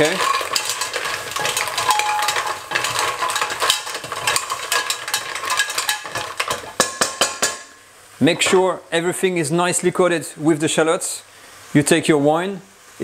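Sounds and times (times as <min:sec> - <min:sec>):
mussel shells clattering in pot: 0:00.0 - 0:07.7.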